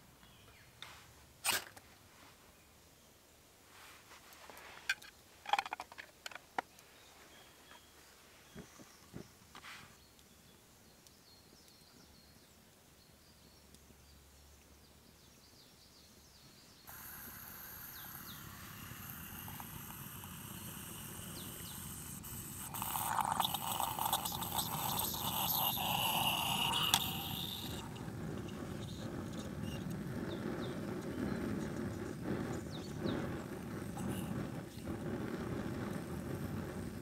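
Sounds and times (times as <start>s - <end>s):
faint bird chirps: 6.7s - 34.4s
coffee pouring into a mug: 16.9s - 29.4s.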